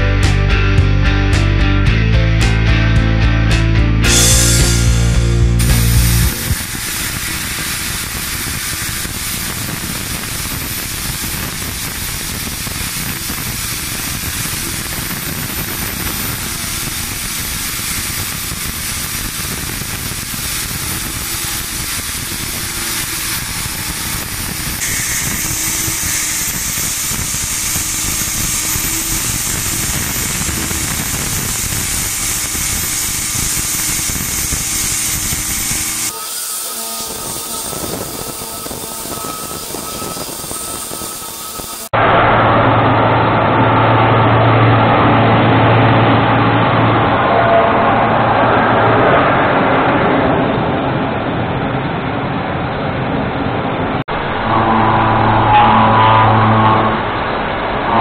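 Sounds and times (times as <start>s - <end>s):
high hissing: 4.1s - 41.9s
milling machine cutting steel: 4.1s - 42.0s.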